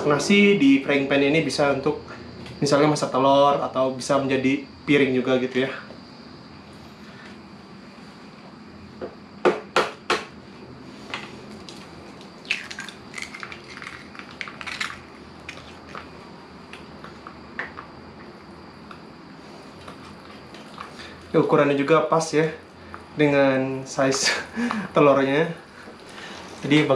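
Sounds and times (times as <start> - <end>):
egg frying with crackles and pops: 11.5 - 19.0
gas stove burner hiss: 15.2 - 26.9.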